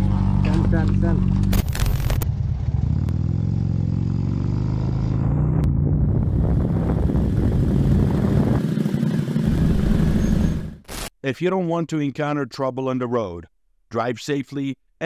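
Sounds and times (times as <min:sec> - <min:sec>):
motorcycle engine accelerating: 0:00.0 - 0:10.8
wind rushing: 0:05.2 - 0:08.8.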